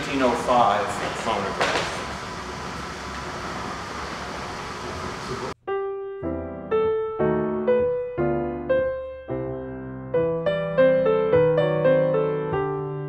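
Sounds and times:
steady hiss: 0.0 - 5.6
slow piano melody: 5.5 - 13.0.

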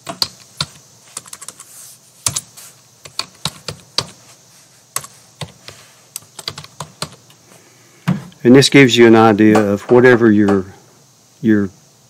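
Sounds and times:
computer keyboard typing: 0.0 - 4.2, 5.0 - 7.3.

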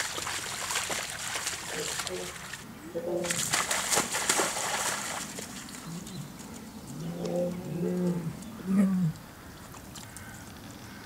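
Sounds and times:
low cooing animal call: 1.8 - 3.5, 5.8 - 9.2.

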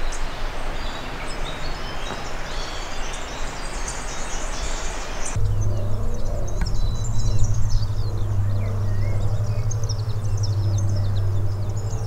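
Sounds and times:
small birds chirping: 0.0 - 12.0
steady low hum: 5.0 - 12.0.

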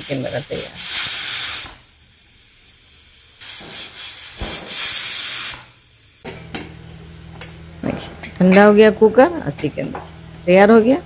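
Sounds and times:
pressure cooker whistle hissing: 0.0 - 1.9, 3.4 - 6.2.

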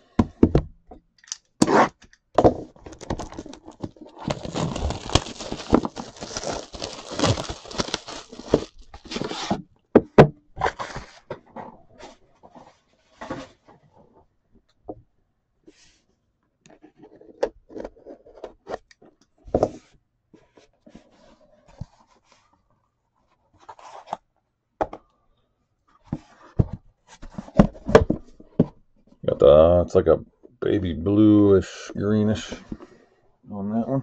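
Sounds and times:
cardboard box taps and scraping: 26.1 - 28.8.

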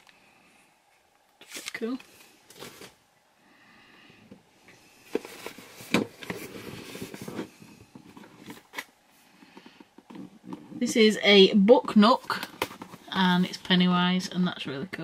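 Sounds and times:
rustling packaging: 1.4 - 3.0, 5.0 - 13.8.

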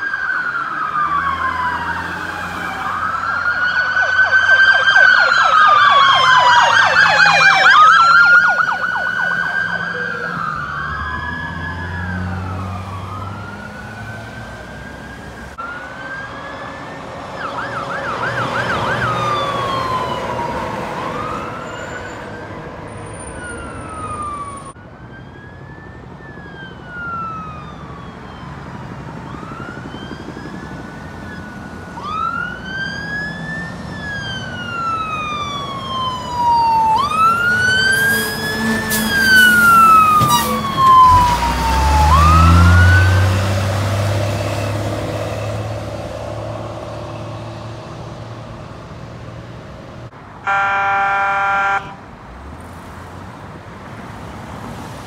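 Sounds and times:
fire truck siren wailing: 0.0 - 49.5, 50.4 - 52.1
diesel engine rumbling by: 36.4 - 49.6
fire truck horn blast: 37.9 - 41.2, 50.4 - 52.0.

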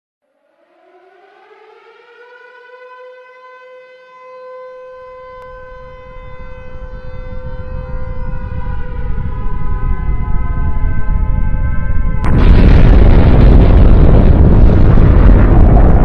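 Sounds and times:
air-raid siren wailing: 0.2 - 16.0
low rumble: 5.4 - 16.0.

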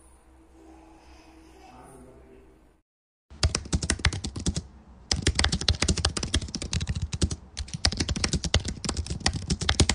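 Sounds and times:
rapid keyboard typing clicks: 3.4 - 9.9.

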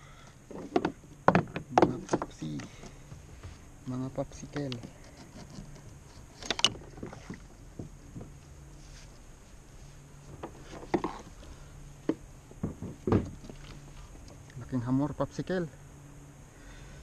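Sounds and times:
hollow knocks on plastic kayak: 12.0 - 13.6.

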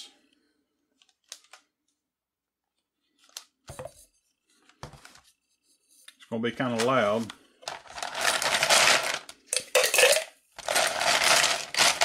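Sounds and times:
ice cubes clinking: 7.7 - 12.0.

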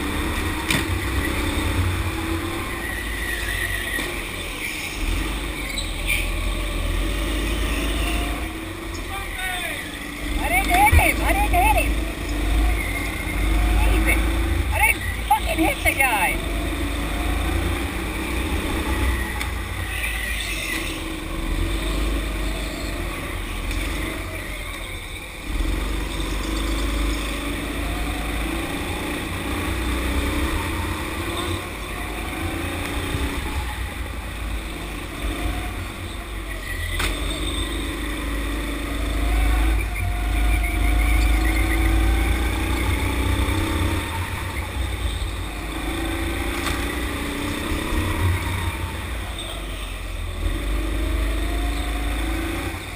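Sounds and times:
go-kart engines revving: 0.0 - 52.9.

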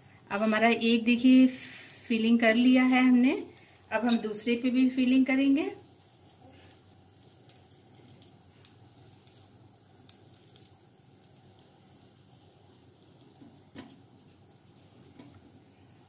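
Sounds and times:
faint sizzling on hot griddle: 0.0 - 16.0
light crackles and clicks: 6.0 - 15.6.

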